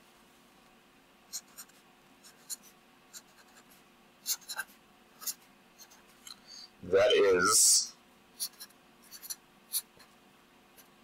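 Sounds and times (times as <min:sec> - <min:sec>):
marker writing on paper: 0:01.3 - 0:06.0, 0:08.4 - 0:10.0.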